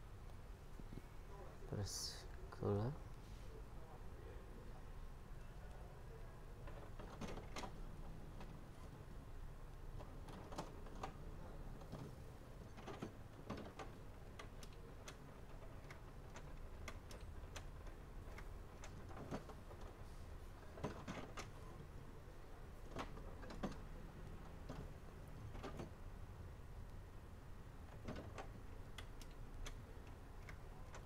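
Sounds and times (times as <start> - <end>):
printer mechanical clicks and ticks: 6.6 - 22.0, 26.8 - 31.0.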